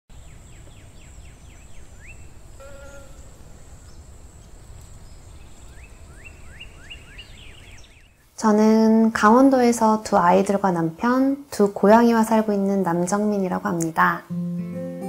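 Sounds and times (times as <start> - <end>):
small birds chirping: 0.1 - 8.4.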